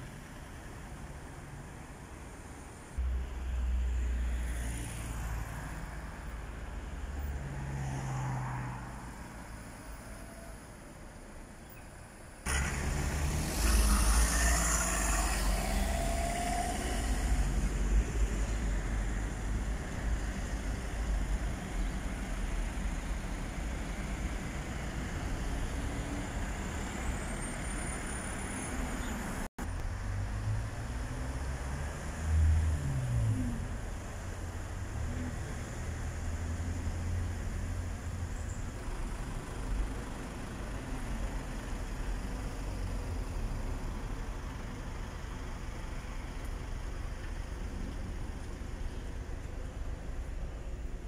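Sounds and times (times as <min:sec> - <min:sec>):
cars driving past: 0:03.0 - 0:10.8, 0:12.4 - 0:44.3.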